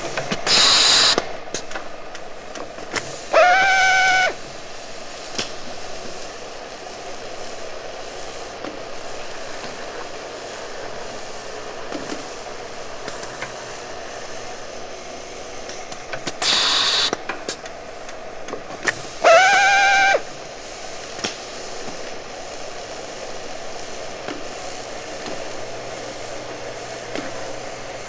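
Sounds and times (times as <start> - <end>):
drill motor whine: 0.4 - 1.2, 3.3 - 4.5, 16.4 - 17.2, 19.1 - 20.4
electric drill drilling: 0.5 - 1.2, 3.3 - 4.4, 16.4 - 17.2, 19.2 - 20.3.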